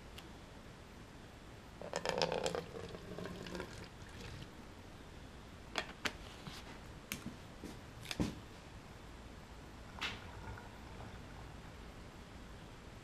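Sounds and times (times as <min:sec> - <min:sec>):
plastic bottles clicking and knocking: 0:01.8 - 0:03.0
liquid gurgle pouring: 0:01.8 - 0:04.6, 0:09.9 - 0:11.5.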